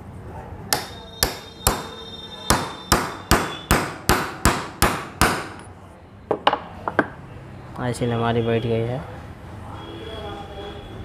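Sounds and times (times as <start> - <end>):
hammer striking steel driver: 0.7 - 5.7.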